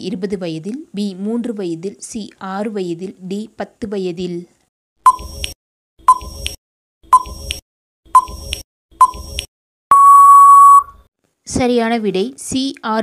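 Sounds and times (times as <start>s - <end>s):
short clicky beeps: 5.1s - 7.6s, 8.2s - 11.0s
long steady beep: 9.9s - 11.0s.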